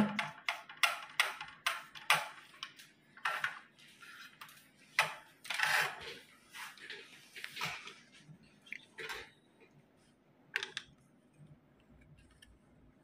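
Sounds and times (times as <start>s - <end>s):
tools clicking and tapping: 0.0s - 3.6s, 10.5s - 11.0s.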